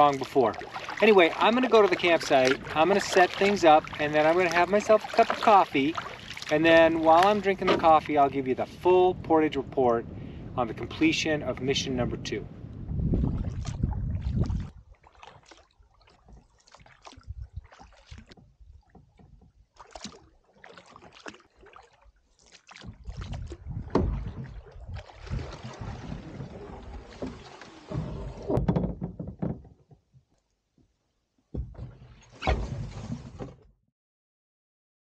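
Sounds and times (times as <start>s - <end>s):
paddle splashing in water: 0.0s - 8.9s, 12.9s - 29.9s
rushing water and heavy thumps: 0.0s - 11.6s, 12.7s - 21.9s, 22.6s - 30.0s, 31.5s - 33.6s
knocks against canoe hull: 7.0s - 8.0s, 23.8s - 24.6s, 27.2s - 30.0s, 31.5s - 32.8s.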